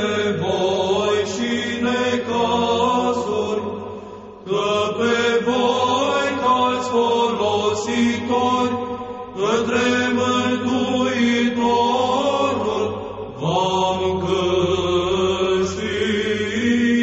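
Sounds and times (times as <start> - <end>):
low voices chanting: 0.0 - 17.0.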